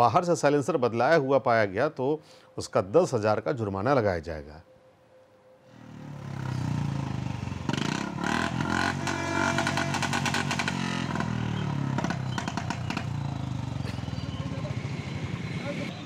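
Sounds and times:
motorcycle engine revving: 5.7 - 16.0
exhaust pops crackling: 8.9 - 13.2.

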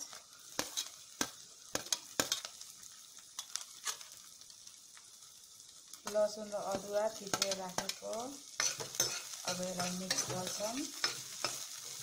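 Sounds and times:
onion sizzling in hot oil: 0.0 - 12.0
spoon tapping against pan: 6.7 - 8.0.

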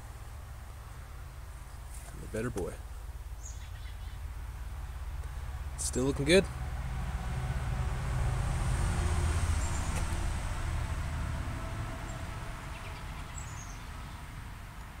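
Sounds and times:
low vehicle engine hum: 0.0 - 15.0
bird chirping: 3.3 - 4.3, 9.5 - 10.2, 12.0 - 14.3.

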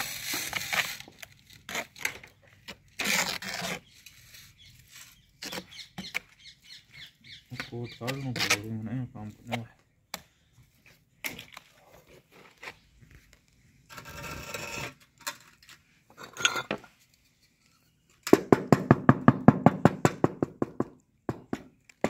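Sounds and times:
trowel scraping mortar: 0.0 - 6.4, 7.6 - 9.6, 13.9 - 15.1.

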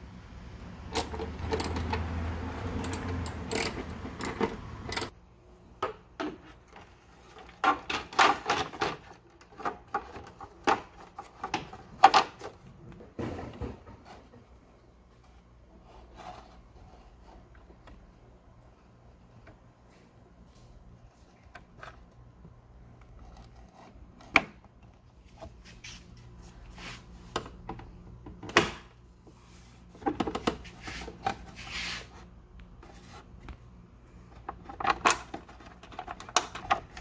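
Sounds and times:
plastic parts rubbing and scraping: 15.2 - 18.0, 23.0 - 27.4, 29.7 - 33.6, 34.3 - 37.0.

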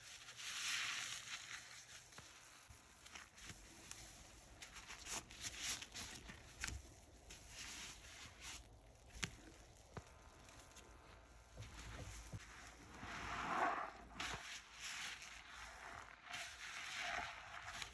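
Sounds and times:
soap suds crackling: 0.1 - 17.9.

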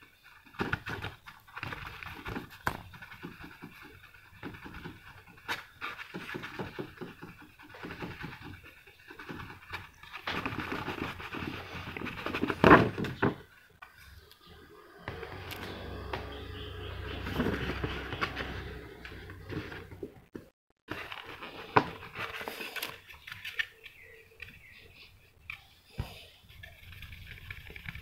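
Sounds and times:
fingertip rubbing plastic: 0.0 - 13.4.

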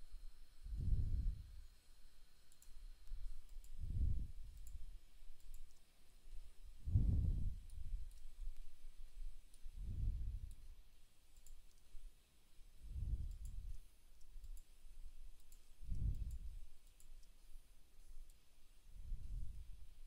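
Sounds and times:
soft low whoosh: 0.6 - 1.4, 6.8 - 8.0, 9.7 - 10.6, 18.9 - 19.8
computer mouse clicks: 2.0 - 6.5, 7.6 - 8.8, 9.4 - 10.7, 11.3 - 12.0, 13.1 - 18.5.

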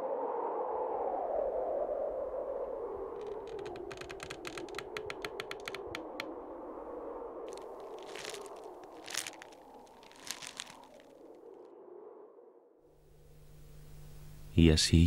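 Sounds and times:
rustling crunching bursts: 3.2 - 6.2, 7.5 - 11.2
sharp clicks: 3.2 - 6.3.

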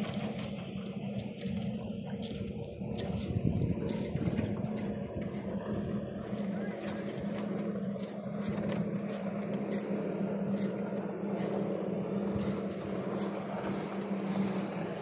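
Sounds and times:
steady low hum: 0.0 - 15.0
wind and water rush: 2.2 - 8.8.

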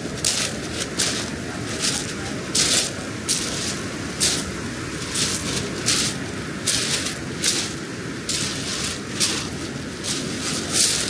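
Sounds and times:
footsteps crunching: 0.0 - 11.0
steady low rush: 0.0 - 11.0.

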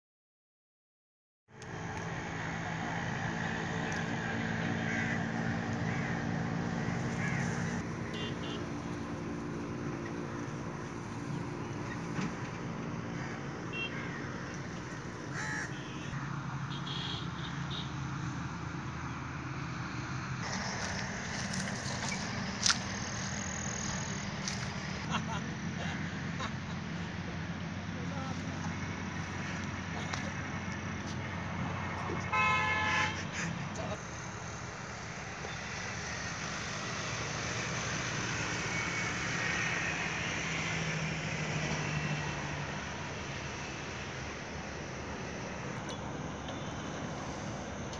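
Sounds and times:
flock of birds calling: 4.8 - 7.8, 13.1 - 16.2
engine running: 19.4 - 32.1.

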